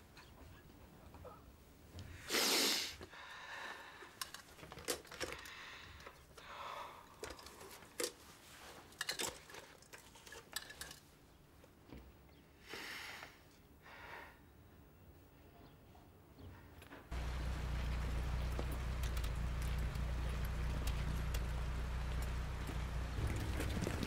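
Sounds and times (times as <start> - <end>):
small clicks and rattles: 4.1 - 6.5, 7.1 - 11.1, 17.1 - 24.0.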